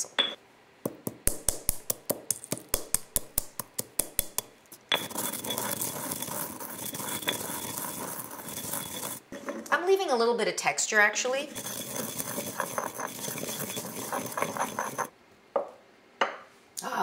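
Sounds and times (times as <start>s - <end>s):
pestle knocking in stone mortar: 0.8s - 9.2s, 11.5s - 15.1s
pestle grinding seeds: 0.9s - 9.7s, 11.4s - 15.1s.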